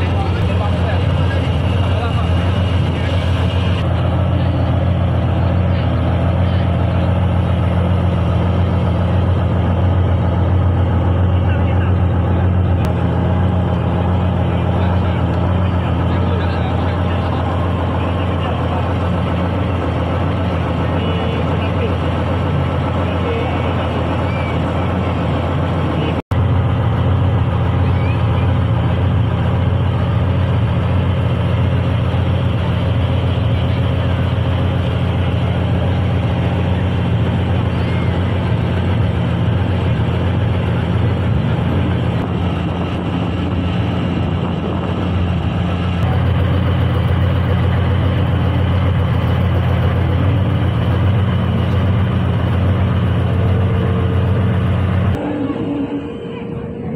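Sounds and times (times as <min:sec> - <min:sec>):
tank diesel engine drone: 0:00.0 - 0:56.9.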